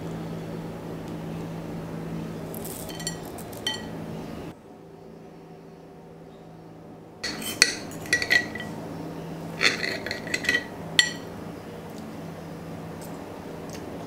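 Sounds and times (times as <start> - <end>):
cutlery scraping a ceramic plate: 7.2 - 8.8, 9.6 - 11.3.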